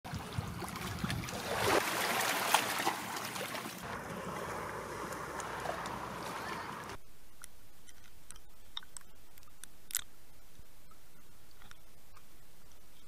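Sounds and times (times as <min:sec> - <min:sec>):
water lapping against rocks: 0:00.1 - 0:07.0.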